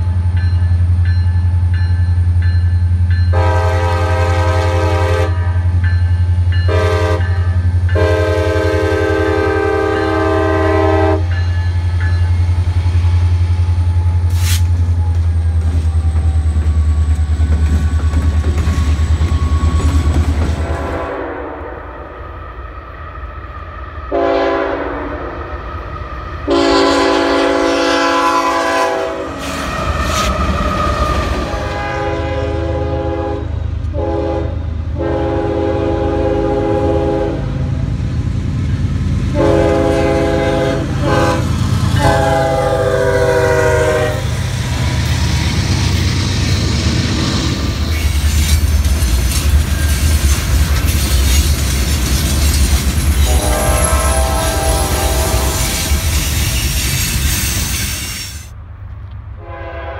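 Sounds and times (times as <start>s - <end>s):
locomotive engine rumble: 0.0s - 21.0s
locomotive horn chords: 3.3s - 5.8s, 6.7s - 11.4s, 20.6s - 22.2s, 24.1s - 25.4s, 26.5s - 29.5s, 31.5s - 37.7s, 39.3s - 44.4s, 53.2s - 56.0s, 59.4s - 59.9s.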